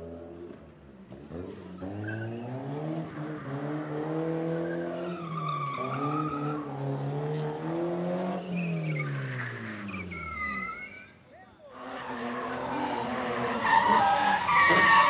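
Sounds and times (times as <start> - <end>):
car engine revving: 0.1 - 11.0, 11.7 - 15.0
tyres squealing: 11.8 - 15.0.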